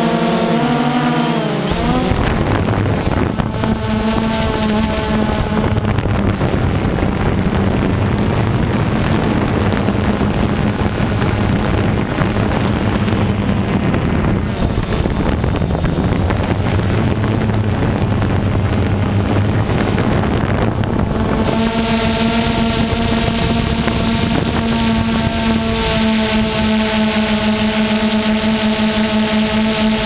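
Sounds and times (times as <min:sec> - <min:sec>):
drone propellers humming: 0:00.0 - 0:30.0
wind on microphone: 0:00.0 - 0:30.0.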